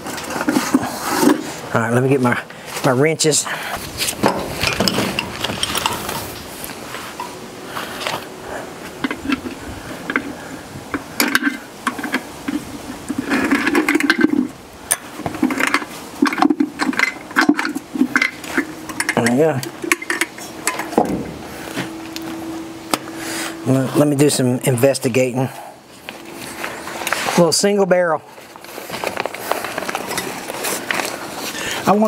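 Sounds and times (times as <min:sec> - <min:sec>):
metal wrenches clinking: 0:04.2 - 0:06.4, 0:11.2 - 0:21.0.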